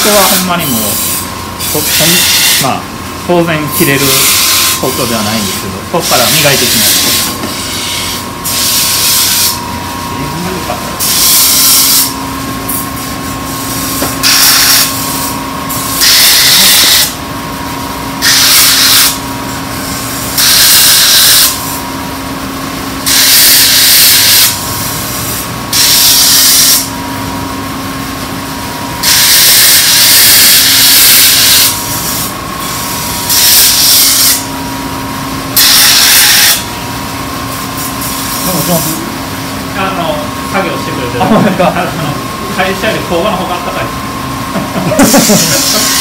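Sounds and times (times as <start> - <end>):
knife blade grinding strokes: 0.0 - 2.7, 3.8 - 9.6, 11.0 - 15.3, 29.0 - 34.4, 45.0 - 46.0.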